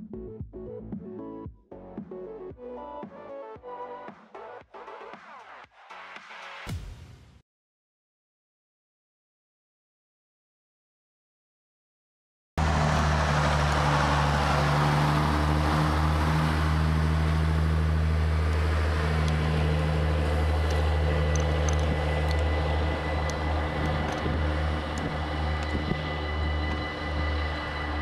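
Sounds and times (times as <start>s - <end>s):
diesel engine humming: 12.6s - 28.0s
train wheels rushing on rails: 12.6s - 28.0s
wheels clicking over rail joints: 17.0s - 28.0s.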